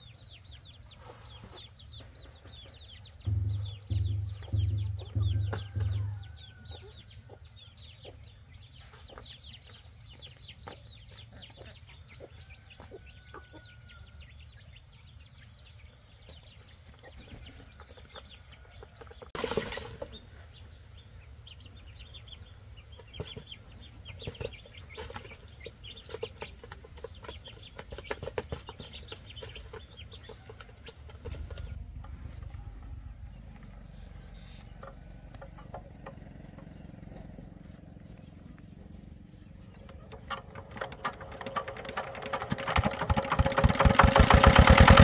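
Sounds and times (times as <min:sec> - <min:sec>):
steady low hum: 0:03.2 - 0:07.7, 0:31.1 - 0:41.7.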